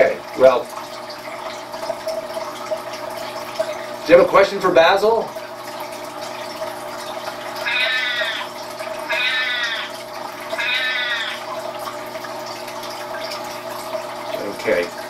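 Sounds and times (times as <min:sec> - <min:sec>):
cat meowing: 0:07.6 - 0:10.0, 0:10.6 - 0:11.5.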